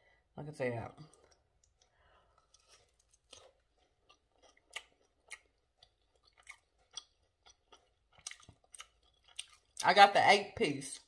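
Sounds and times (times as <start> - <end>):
crunchy chewing: 1.1 - 9.8.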